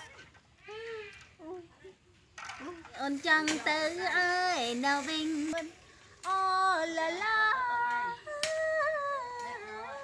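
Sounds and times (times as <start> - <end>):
woman singing long notes: 3.0 - 10.0.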